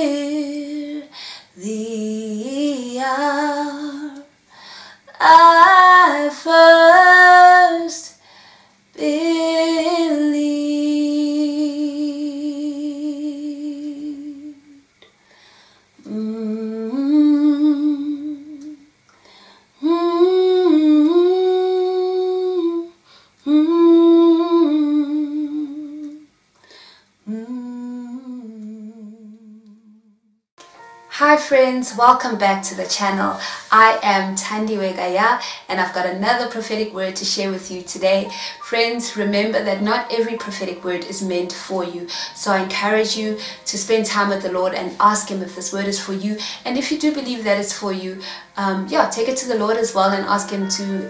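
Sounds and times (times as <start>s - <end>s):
woman humming a slow melody: 16.0s - 18.9s, 19.8s - 26.3s, 27.2s - 30.2s.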